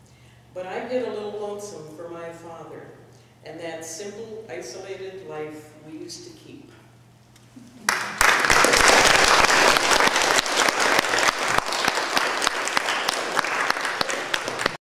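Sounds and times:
audience applauding: 7.8s - 14.8s.

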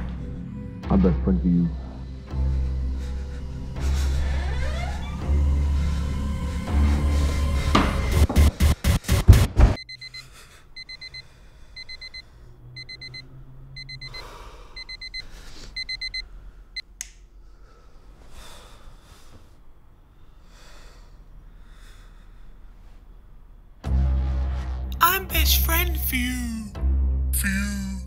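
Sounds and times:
digital alarm clock beeping: 9.8s - 12.2s, 12.8s - 13.2s, 13.8s - 14.2s, 14.8s - 16.2s
soft breaths: 14.0s - 23.4s.

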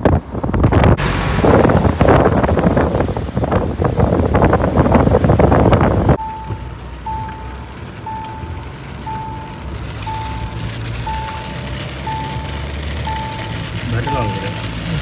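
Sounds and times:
wind buffeting the microphone: 0.0s - 6.2s
car road noise: 0.0s - 15.0s
short beeps: 9.1s - 9.5s.

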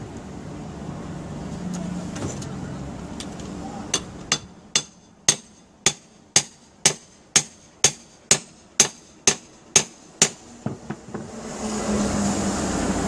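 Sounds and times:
hammer striking metal bar: 3.9s - 11.2s.

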